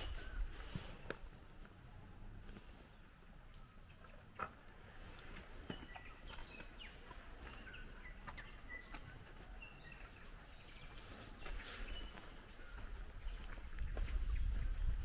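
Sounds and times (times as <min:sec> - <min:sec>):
faint bird chirps: 0:05.7 - 0:15.0.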